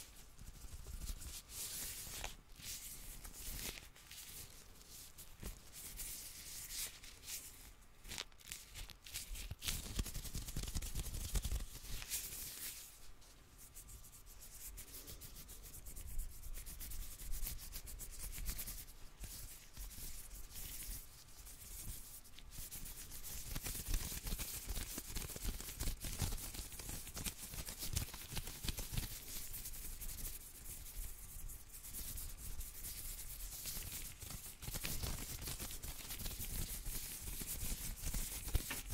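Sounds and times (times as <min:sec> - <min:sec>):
plastic gloves crinkling: 0:00.0 - 0:15.2, 0:24.0 - 0:38.9.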